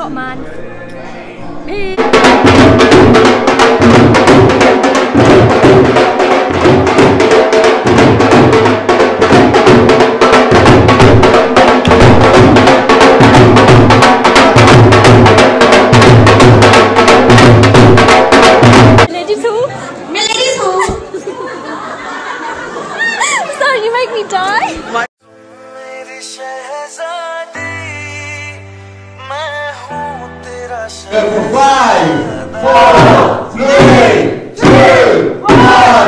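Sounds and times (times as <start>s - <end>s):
loud music with fast drum beat: 2.0s - 19.1s, 32.6s - 36.0s.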